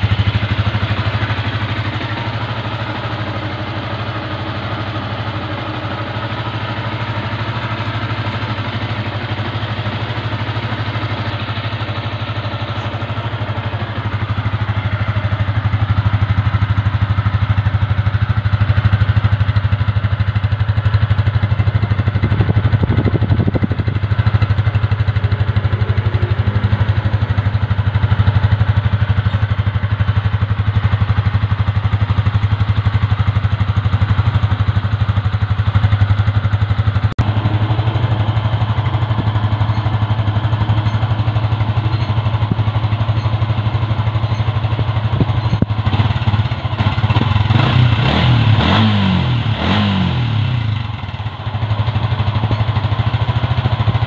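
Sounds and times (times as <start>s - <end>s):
motorcycle engine idling: 0.0s - 54.0s.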